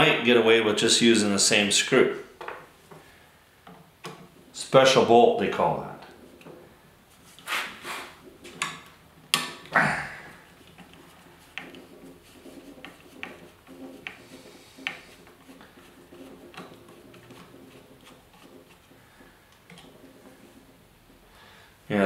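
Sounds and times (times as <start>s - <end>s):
metal clicks and knocks: 3.6s - 4.4s, 8.2s - 9.7s.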